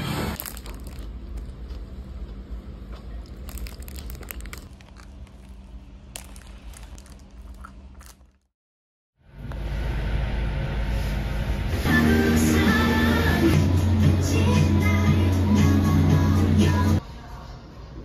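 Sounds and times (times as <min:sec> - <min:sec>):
plastic bag crinkling: 0:00.4 - 0:01.8, 0:03.2 - 0:08.5
crunchy chewing of fried food: 0:00.4 - 0:08.5.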